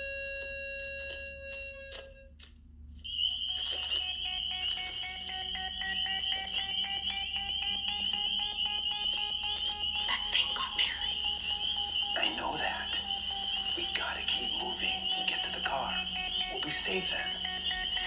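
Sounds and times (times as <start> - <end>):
fast regular ticking: 3.4 - 18.0
high warbling tone: 4.0 - 18.0
eerie held chord: 4.1 - 18.0.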